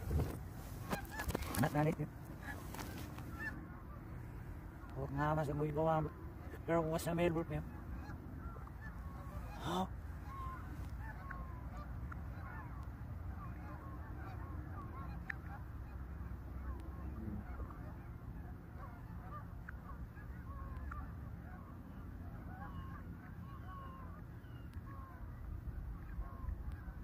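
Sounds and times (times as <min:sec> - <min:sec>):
geese honking: 0:00.0 - 0:27.0.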